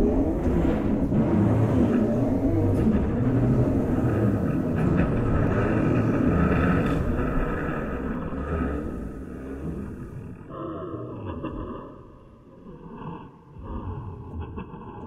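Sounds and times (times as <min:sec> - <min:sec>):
frame drum low rumble: 0:00.0 - 0:10.4.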